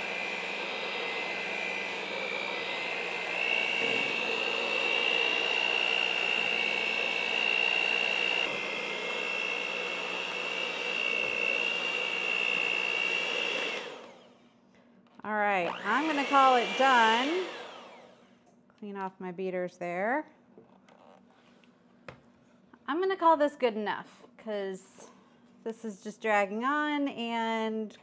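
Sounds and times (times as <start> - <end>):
electric hand mixer whining: 0.0 - 14.4, 15.6 - 18.2.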